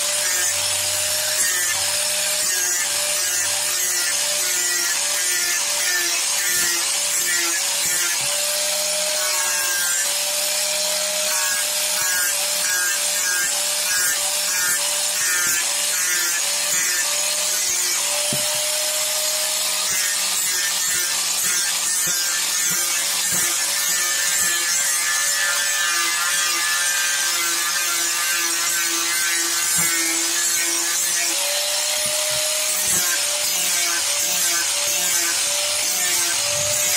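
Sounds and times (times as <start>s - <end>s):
angle grinder grinding wood: 0.0s - 36.9s.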